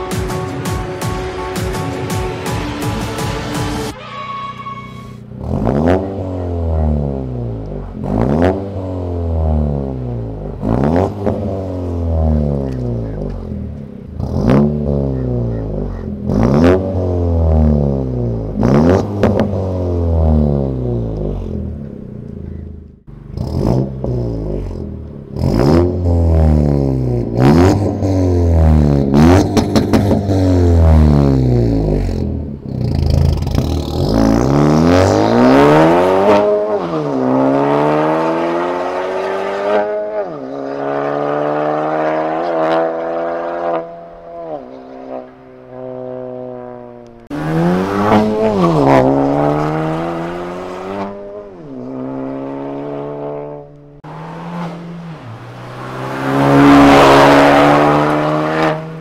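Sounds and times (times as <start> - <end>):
exhaust cracks: 5.2 - 37.4, 46.4 - 59.0
car engine revving: 5.2 - 59.0.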